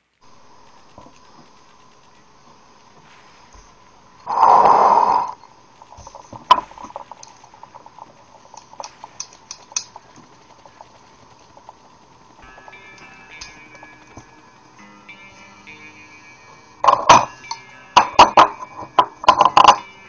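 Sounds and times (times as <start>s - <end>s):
rush of air through valve: 4.3s - 5.4s.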